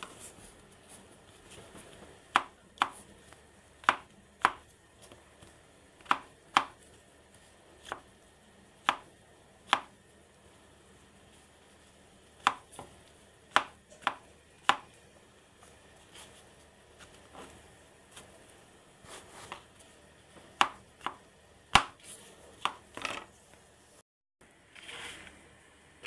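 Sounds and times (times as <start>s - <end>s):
knife tapping cutting board: 20.6s - 22.0s.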